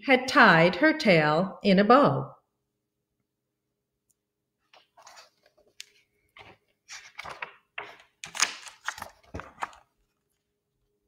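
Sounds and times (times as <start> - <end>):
book pages rustling: 4.6 - 10.6.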